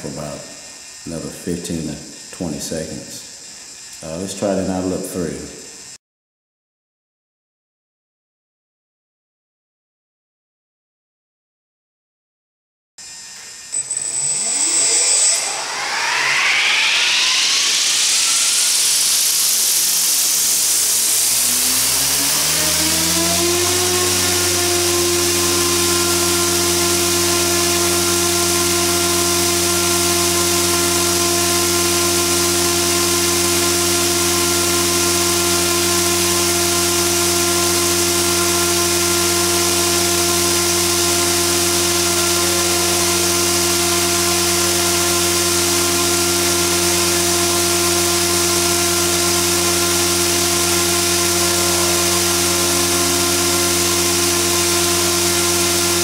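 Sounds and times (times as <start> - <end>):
rc helicopter motor whine: 0.0 - 5.0, 13.0 - 56.0
hiss: 16.7 - 21.9.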